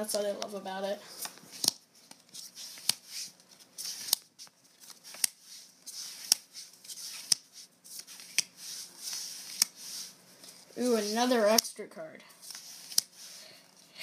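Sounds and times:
cards snapping: 1.2 - 3.2, 3.8 - 5.4, 6.0 - 8.5, 12.5 - 13.2
papery rustle of cards: 1.2 - 11.5, 12.4 - 13.6.

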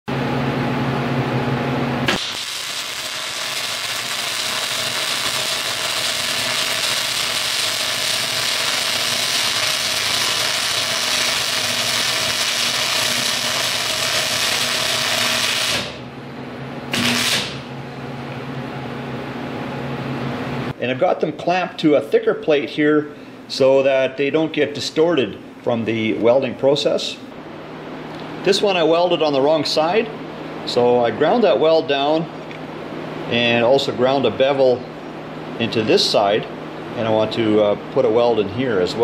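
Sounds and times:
welding arc hissing: 2.0 - 16.0, 16.9 - 17.7
welding arc striking click: 2.0 - 16.0, 16.9 - 17.7.

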